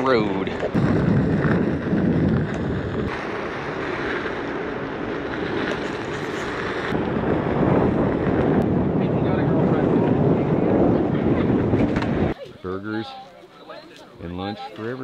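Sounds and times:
wind noise on microphone: 0.4s - 12.4s.

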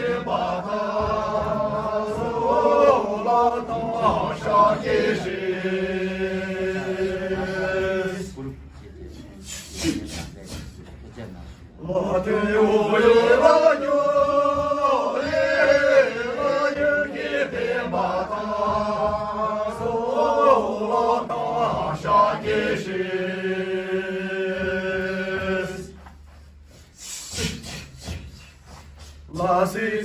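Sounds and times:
group singing in unison: 0.0s - 8.6s, 11.8s - 26.4s, 27.2s - 30.0s.

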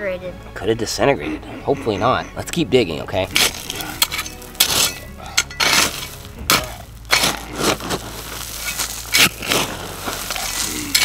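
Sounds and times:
tool digging in cinders: 3.2s - 11.0s.

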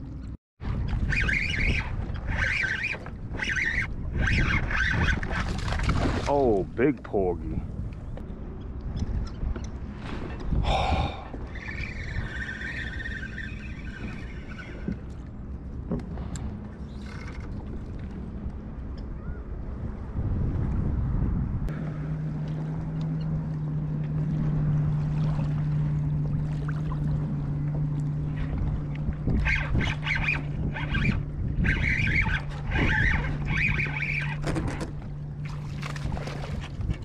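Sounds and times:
water splashing: 0.0s - 7.5s, 21.7s - 37.0s
reel whirring: 0.7s - 6.4s, 11.3s - 19.5s, 21.7s - 37.0s.

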